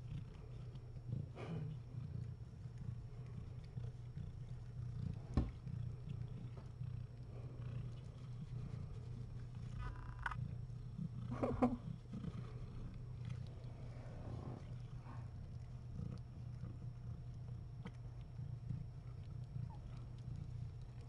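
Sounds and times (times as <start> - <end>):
cat purring: 0.0 - 21.0.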